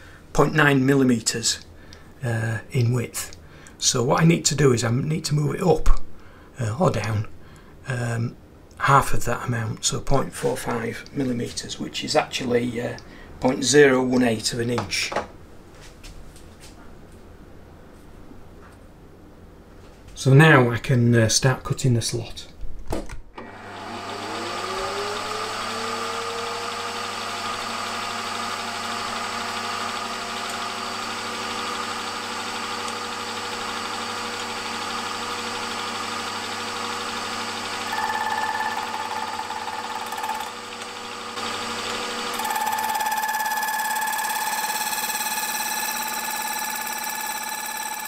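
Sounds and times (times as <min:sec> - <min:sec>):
milling machine spindle whine: 0:23.4 - 0:48.0
high steady tone: 0:37.9 - 0:40.5, 0:42.4 - 0:48.0.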